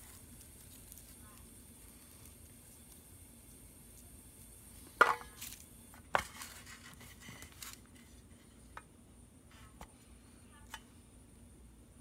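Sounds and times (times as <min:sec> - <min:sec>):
rustling of dry garlic skins: 0:00.0 - 0:08.8.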